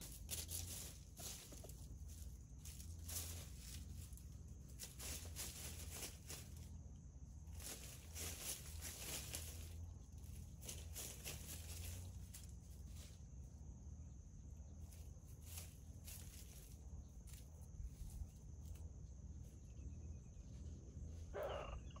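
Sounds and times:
short animal call: 0:21.3 - 0:22.0.

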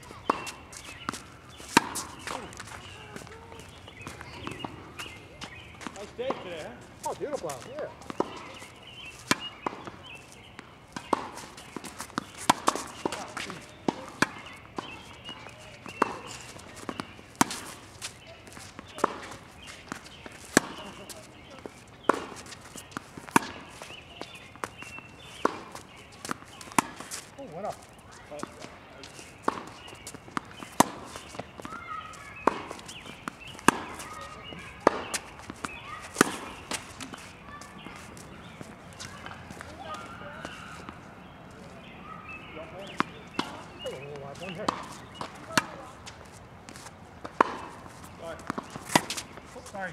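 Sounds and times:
shoes scuffing on court: 0:00.0 - 0:49.9
racket striking tennis ball: 0:00.2 - 0:06.5, 0:08.0 - 0:21.2, 0:22.0 - 0:27.3, 0:29.3 - 0:41.0, 0:42.8 - 0:49.5
ball bouncing on hard court: 0:29.4 - 0:40.6, 0:42.8 - 0:43.6, 0:44.4 - 0:46.2, 0:47.2 - 0:49.3.

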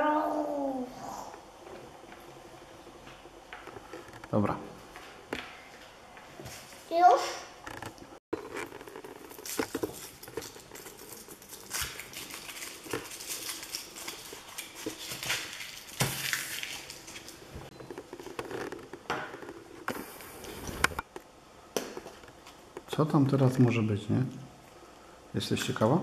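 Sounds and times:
foil wrapper crinkling: 0:08.4 - 0:18.8.

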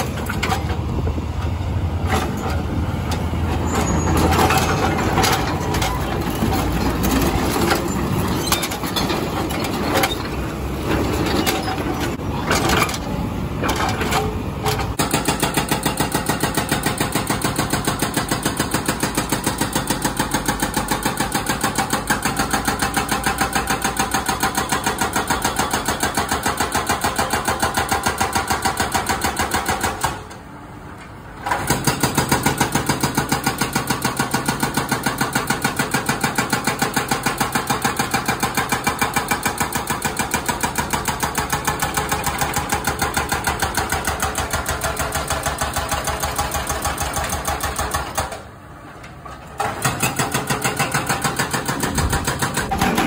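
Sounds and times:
hydraulic breaker hammering asphalt: 0:13.6 - 0:30.3, 0:31.4 - 0:48.5, 0:49.6 - 0:53.0.

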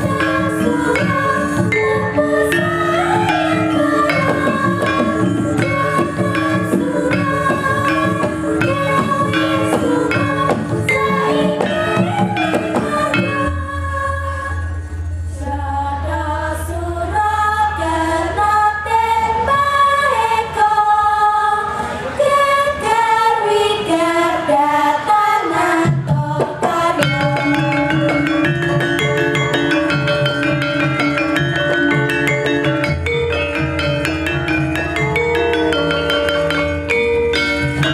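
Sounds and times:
drums: 0:00.0 - 0:15.4, 0:25.6 - 0:37.9
struck bronze metallophones: 0:00.0 - 0:15.6, 0:25.8 - 0:37.9
female chorus singing: 0:00.0 - 0:30.0.

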